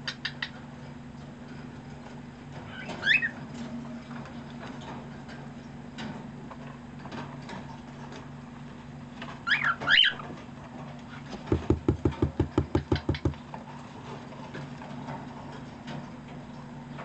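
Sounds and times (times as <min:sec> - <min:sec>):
beak tapping on cardboard box: 0:11.5 - 0:13.4.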